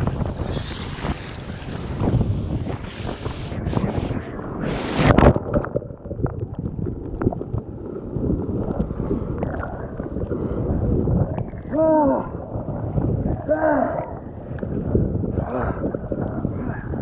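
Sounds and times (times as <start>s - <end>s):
water rushing and sloshing: 0.0s - 17.0s
wind on microphone: 0.0s - 17.0s
person grunting: 11.7s - 12.4s, 13.4s - 14.1s.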